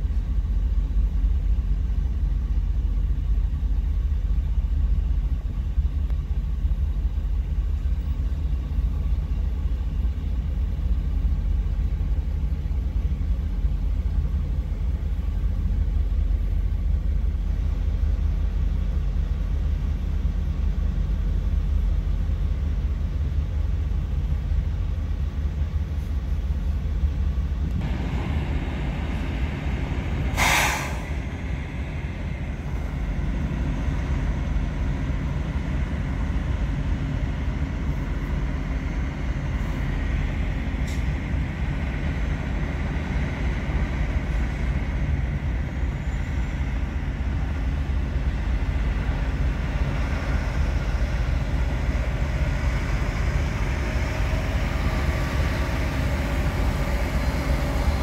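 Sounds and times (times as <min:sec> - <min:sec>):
diesel truck idling: 0:27.8 - 0:44.9
air brake hiss: 0:30.2 - 0:31.5, 0:40.8 - 0:41.2.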